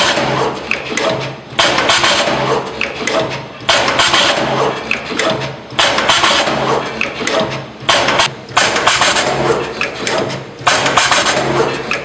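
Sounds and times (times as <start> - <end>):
machine hiss bursts: 5.8 - 9.4, 10.0 - 11.6.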